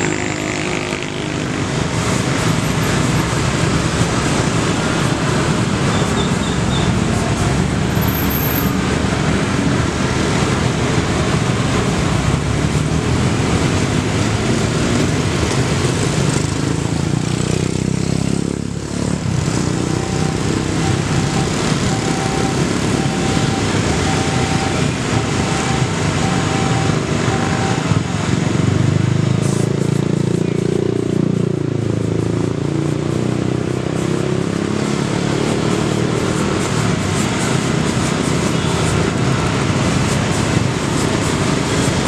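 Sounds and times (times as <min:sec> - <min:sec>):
motorcycle engines passing: 0:00.0 - 0:42.0
faint repeating beep: 0:20.0 - 0:27.9.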